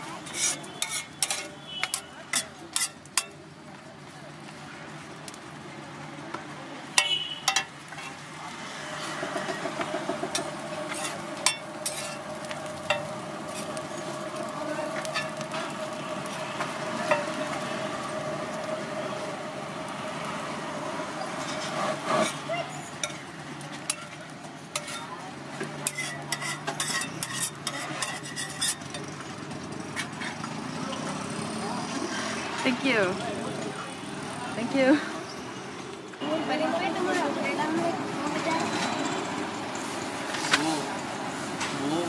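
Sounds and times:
low sizzle: 0.0 - 42.0
metal spatula clanking on griddle: 0.2 - 3.4, 6.9 - 8.2, 9.3 - 13.7, 15.0 - 15.7, 17.0 - 17.6, 21.4 - 29.2.

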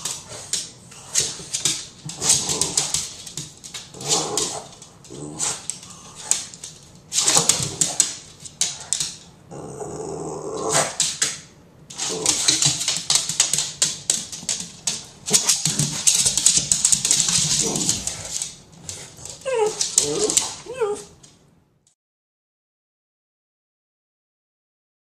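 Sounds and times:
claws clicking on hardwood floor: 0.0 - 9.3, 10.8 - 21.1
dog growling and grunting: 2.1 - 3.1, 3.9 - 6.3, 9.5 - 11.0, 11.9 - 12.7, 17.3 - 18.4, 19.3 - 21.1.

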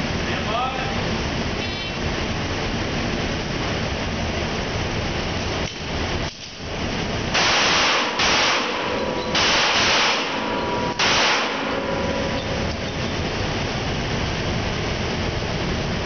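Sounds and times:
pistol shots echoing indoors: 7.3 - 12.7.

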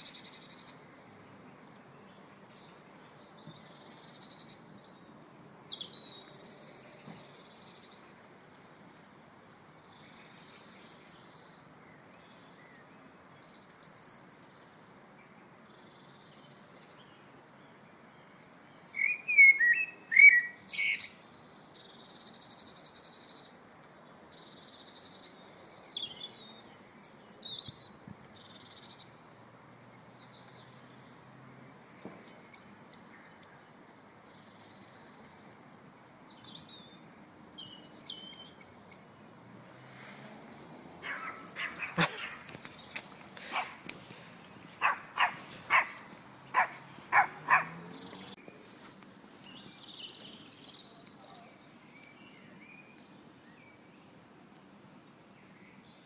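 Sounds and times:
faint steady hiss: 0.0 - 47.2
birds chirping and whistling: 18.8 - 21.2, 36.4 - 39.8, 41.0 - 48.5.

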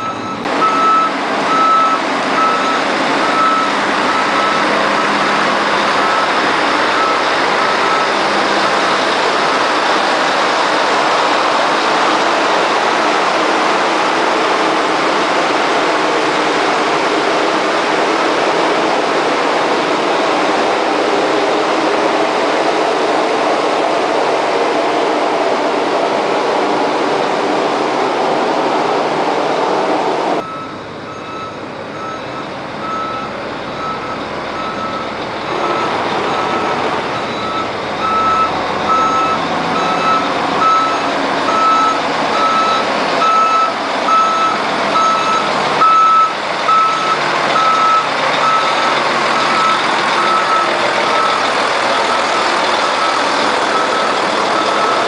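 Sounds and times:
truck reversing alarm beeps: 0.0 - 9.6, 30.4 - 55.0
truck engine running: 0.0 - 55.0.

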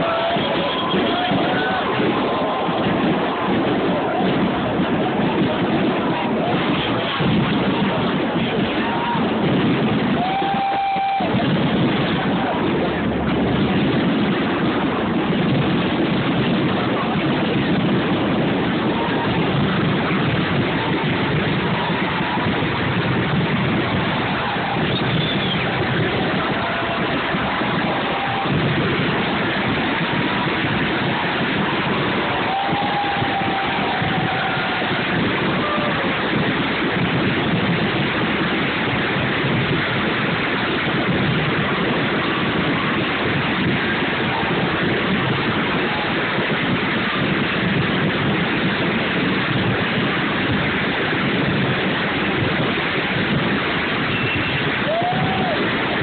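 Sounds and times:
muffled fireworks rumble: 0.0 - 56.0
faint firework whistles: 24.6 - 25.9, 54.0 - 55.6.

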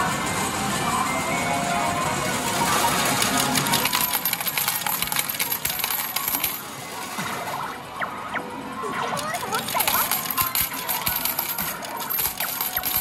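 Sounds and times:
metal medals clattering: 3.0 - 6.6, 9.2 - 13.0.

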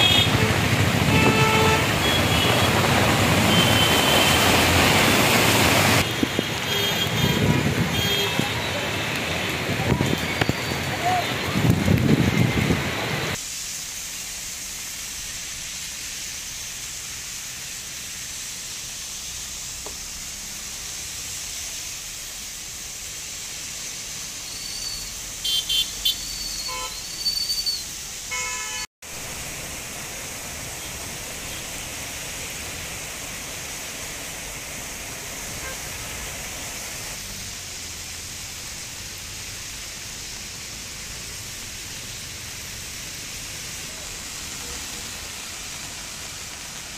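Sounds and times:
vehicle horns honking: 0.0 - 2.8, 6.0 - 8.8, 25.4 - 27.0, 28.3 - 28.9
heavy rain hiss: 0.0 - 46.9
traffic on wet road: 0.0 - 46.9.

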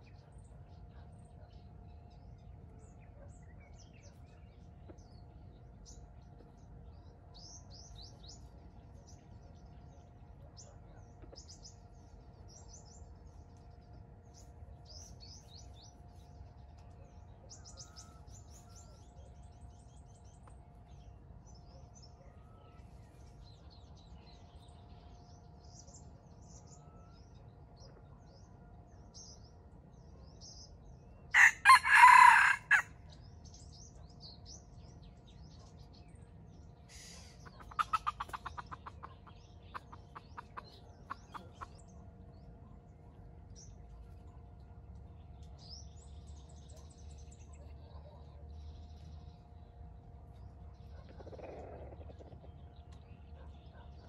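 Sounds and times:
small birds chirping: 0.0 - 54.0
rooster crowing: 31.4 - 33.0.

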